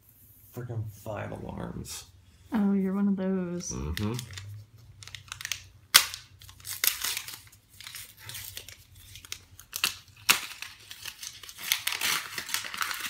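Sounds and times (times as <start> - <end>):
wrapping paper crinkling and tearing: 4.0 - 13.0.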